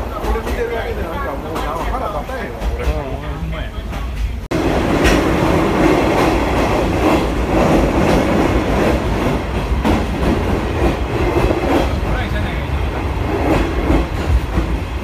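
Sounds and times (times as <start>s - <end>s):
clack at rail joints: 0.0s - 0.9s, 3.9s - 12.3s
train wheels rumbling on rail: 0.0s - 15.0s.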